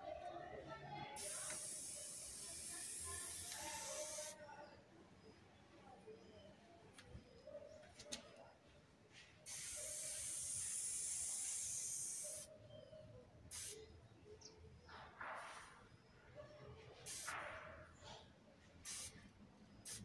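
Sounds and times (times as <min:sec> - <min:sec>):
spray paint can hissing: 0:01.2 - 0:04.4, 0:09.4 - 0:12.5, 0:13.5 - 0:13.8, 0:17.0 - 0:17.4, 0:18.8 - 0:19.2.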